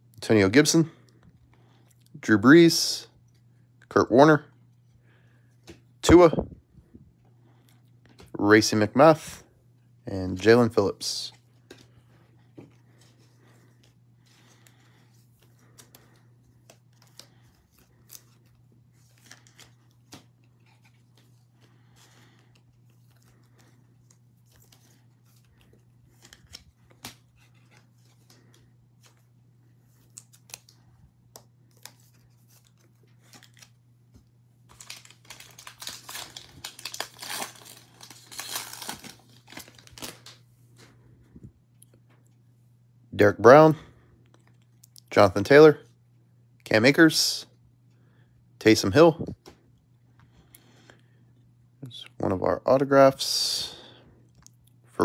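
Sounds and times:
steady low hum: 0:00.0 - 0:55.0
foil pack crinkling and tearing: 0:34.7 - 0:40.4.

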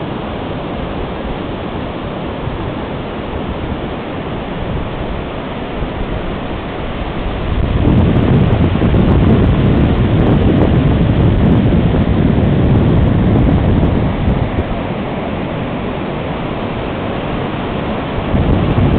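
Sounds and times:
ocean surf breaking on beach: 0:00.0 - 0:18.9
wind buffeting microphone: 0:04.5 - 0:18.9.

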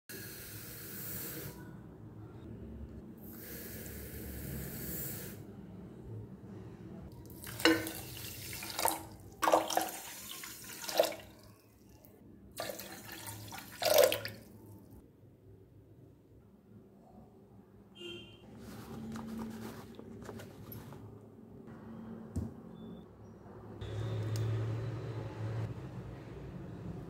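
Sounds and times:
water pouring into a pot: 0:07.3 - 0:11.5, 0:12.6 - 0:14.5.

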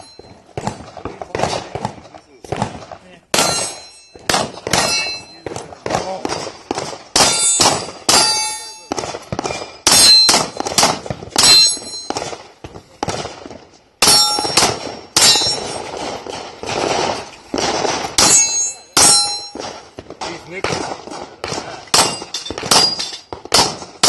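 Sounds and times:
bullets clanging on steel targets: 0:00.0 - 0:00.4, 0:03.3 - 0:05.5, 0:07.2 - 0:12.4, 0:14.0 - 0:16.0, 0:18.2 - 0:20.4, 0:21.4 - 0:24.0
pistol shots: 0:00.0 - 0:24.0.

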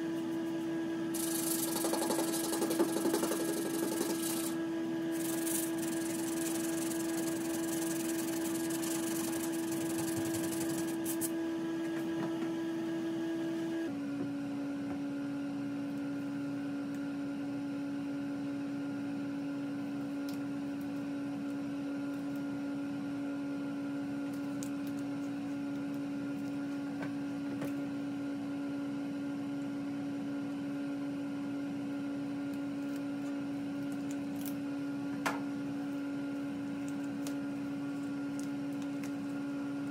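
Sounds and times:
electrical hum: 0:00.0 - 0:39.9
sanding sponge rubbing: 0:01.2 - 0:04.6, 0:05.2 - 0:11.3
masking tape being peeled: 0:03.3 - 0:11.3.

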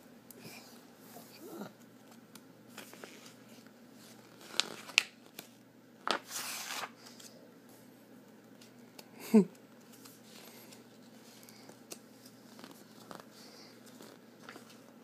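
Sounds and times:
paper rustle: 0:02.7 - 0:07.4, 0:09.8 - 0:15.0.

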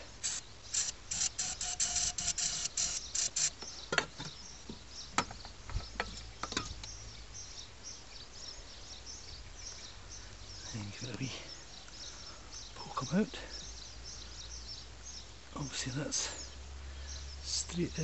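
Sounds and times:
aerosol spray squirts hissing: 0:00.0 - 0:03.5.

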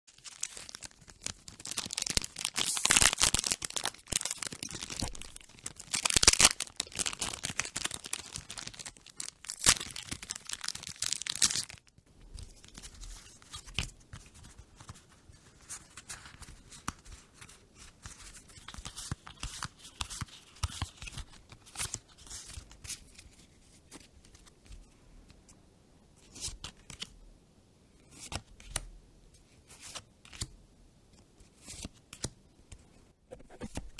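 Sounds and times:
foil wrapper tearing and crinkling: 0:00.1 - 0:11.8
playing cards handled: 0:33.3 - 0:33.9.

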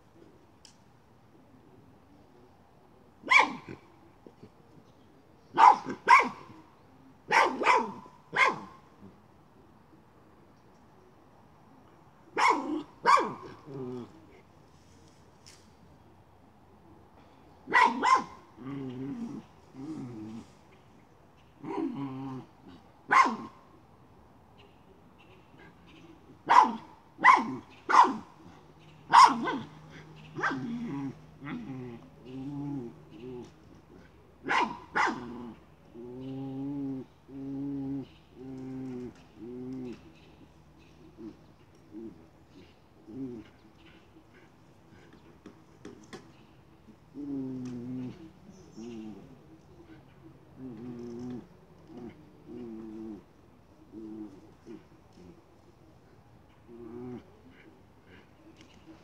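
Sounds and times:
dog barking: 0:03.2 - 0:03.8, 0:05.6 - 0:06.5, 0:07.3 - 0:08.8, 0:12.4 - 0:13.5, 0:17.7 - 0:18.4, 0:23.1 - 0:23.6, 0:26.4 - 0:28.3, 0:29.1 - 0:29.8, 0:30.4 - 0:30.8, 0:34.4 - 0:35.4
dog growling: 0:18.6 - 0:20.6, 0:21.6 - 0:22.9, 0:29.5 - 0:34.1, 0:35.2 - 0:40.1, 0:43.0 - 0:45.1, 0:47.1 - 0:53.3, 0:56.6 - 0:58.3.

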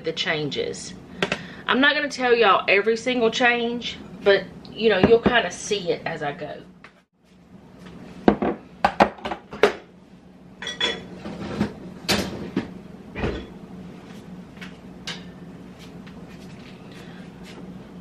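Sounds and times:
dishes and utensils clattering: 0:10.6 - 0:12.4.

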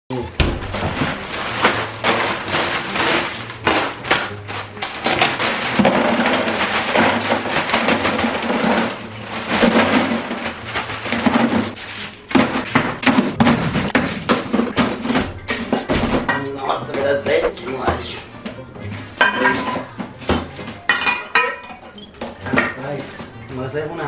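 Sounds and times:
ice clattering against plastic: 0:00.4 - 0:16.3
plastic bag rustling: 0:00.6 - 0:16.3.

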